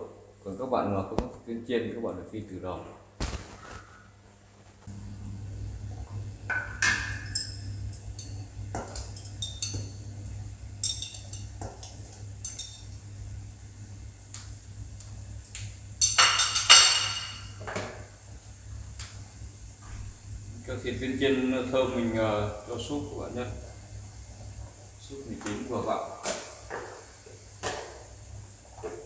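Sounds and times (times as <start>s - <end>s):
steady low hum: 0.0s - 29.0s
metal utensil clinking on pots: 6.5s - 9.9s, 10.8s - 12.9s, 16.0s - 17.6s.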